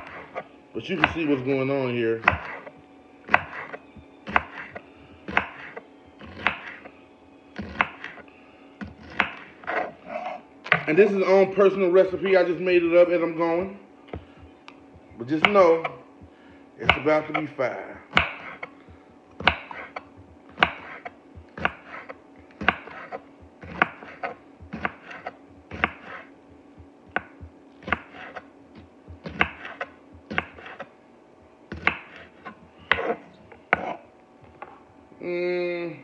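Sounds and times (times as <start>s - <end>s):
knife chopping on board: 0.0s - 1.5s, 2.2s - 6.9s, 7.6s - 8.2s, 8.8s - 10.9s, 14.1s - 17.5s, 18.1s - 30.9s, 31.7s - 34.0s.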